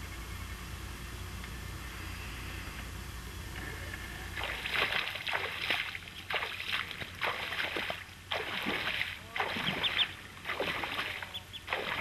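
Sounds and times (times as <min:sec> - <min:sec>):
splashing through shallow water: 0:04.4 - 0:12.0.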